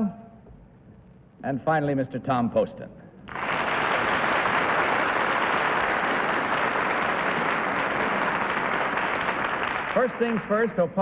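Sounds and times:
audience applauding: 0:03.3 - 0:10.8.

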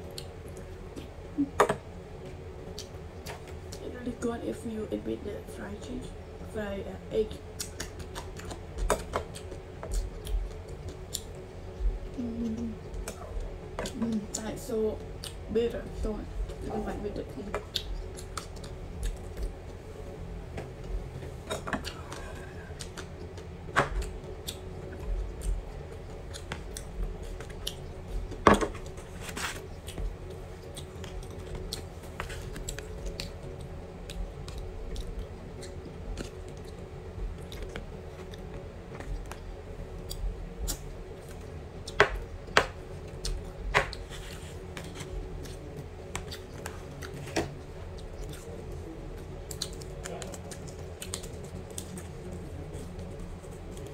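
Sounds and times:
faint steady hum: 0:00.0 - 0:53.9
chewing: 0:21.5 - 0:29.0, 0:29.6 - 0:39.4, 0:43.0 - 0:47.3, 0:47.9 - 0:53.9.

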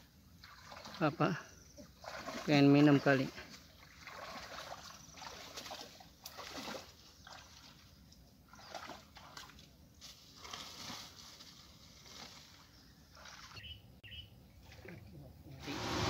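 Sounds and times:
water splashing and sloshing: 0:00.0 - 0:13.8, 0:14.5 - 0:16.0.

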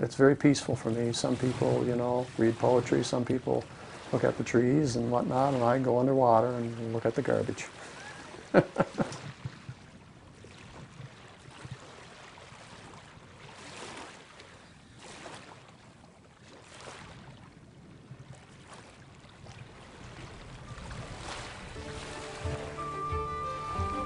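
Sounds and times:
water sloshing and lapping: 0:00.0 - 0:23.1
wind on microphone: 0:14.7 - 0:22.7
music: 0:20.7 - 0:24.0.

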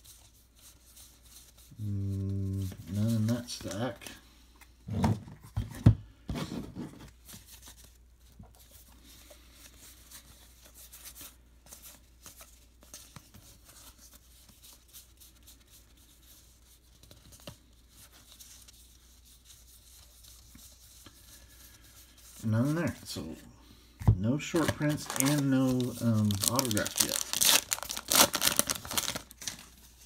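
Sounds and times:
cards flicking and rustling: 0:24.5 - 0:30.0.

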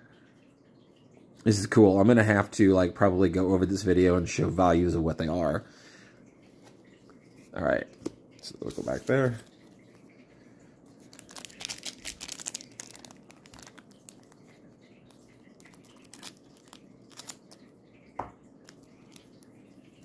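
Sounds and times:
foil wrapper crinkling: 0:11.0 - 0:17.7.

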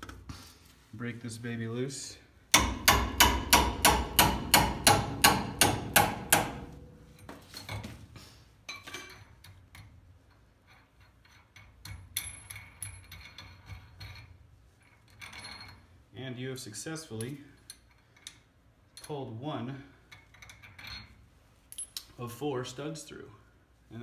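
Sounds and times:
nut and washers clinking: 0:20.1 - 0:22.2.

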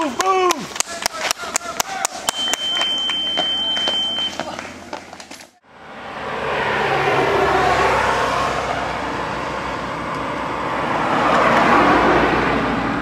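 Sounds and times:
cars driving past: 0:02.6 - 0:13.0.

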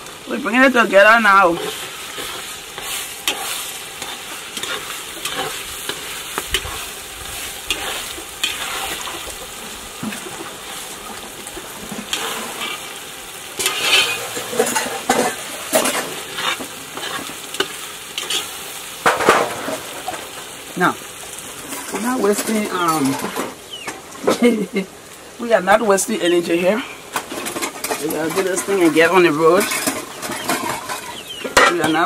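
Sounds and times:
sizzling in a pot: 0:00.0 - 0:32.0
metal spoon scraping a pot: 0:01.6 - 0:09.3, 0:13.6 - 0:18.5, 0:27.3 - 0:31.4.

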